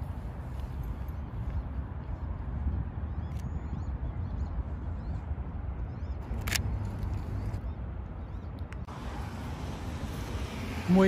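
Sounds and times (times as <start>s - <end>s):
wind rumble on microphone: 0.0s - 11.0s
camera shutter click: 6.2s - 7.6s.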